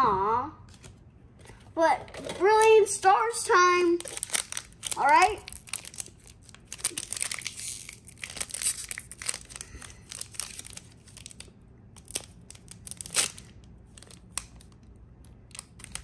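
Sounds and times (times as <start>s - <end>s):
foil wrapper crinkling and tearing: 3.9s - 16.0s.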